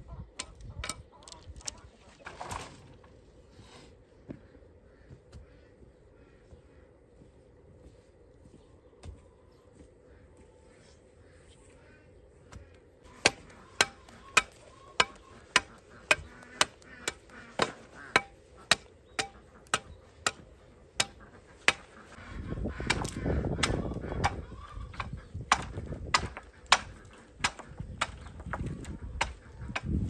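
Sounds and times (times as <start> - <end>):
machete chopping wood: 13.2 - 20.4, 21.0 - 21.9, 25.0 - 30.0.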